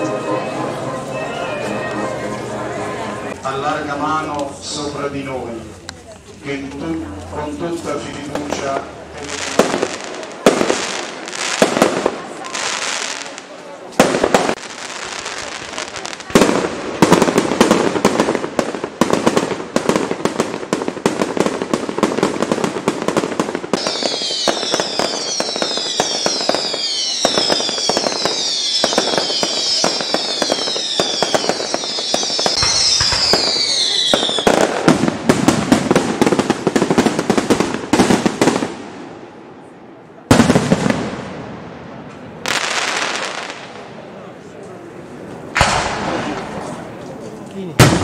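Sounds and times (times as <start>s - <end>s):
fireworks crackling and popping: 3.3s - 39.4s, 40.3s - 48.0s
loud firework bang: 22.9s - 39.1s, 45.5s - 46.8s, 47.8s - 48.0s
fireworks whistles falling in pitch: 23.7s - 34.9s.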